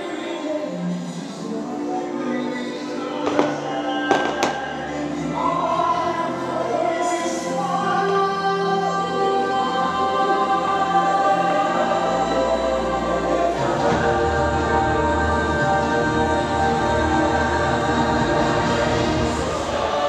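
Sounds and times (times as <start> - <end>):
choir singing held chords: 0.0 - 20.0
sharp crack: 3.3 - 4.7.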